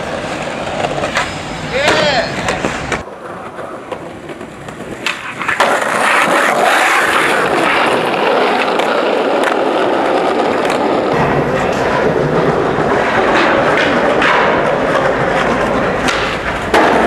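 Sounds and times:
skateboard clack: 0:00.0 - 0:17.0
skateboard wheels rolling on asphalt: 0:00.0 - 0:17.0.

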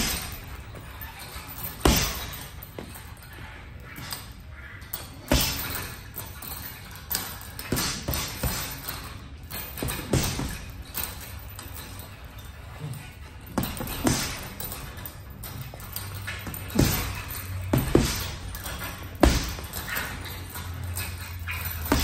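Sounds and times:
boxing gloves hitting heavy bag: 0:00.0 - 0:03.0, 0:05.2 - 0:11.2, 0:13.5 - 0:22.0.

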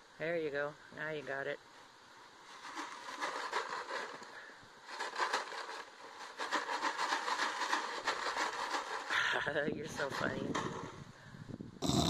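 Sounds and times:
plastic jug crackling: 0:02.4 - 0:10.8.

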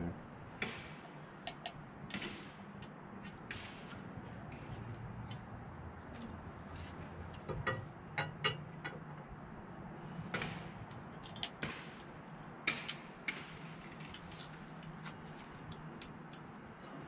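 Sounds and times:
metallic clicks and scrapes: 0:10.9 - 0:17.0.

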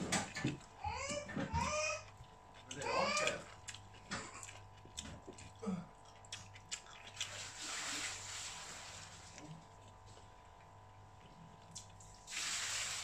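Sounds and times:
chewing: 0:01.6 - 0:12.2
voice humming: 0:02.7 - 0:03.5.

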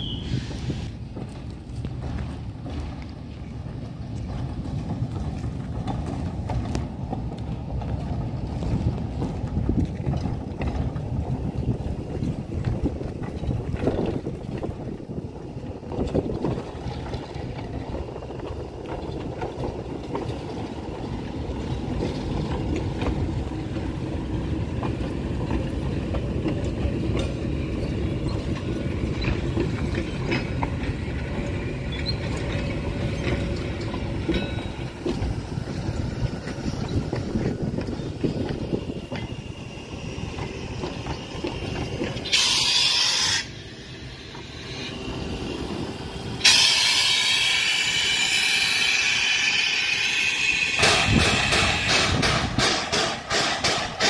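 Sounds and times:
steam hissing: 0:00.0 - 0:01.0, 0:35.3 - 0:54.0
train carriages rumbling: 0:00.0 - 0:54.0.

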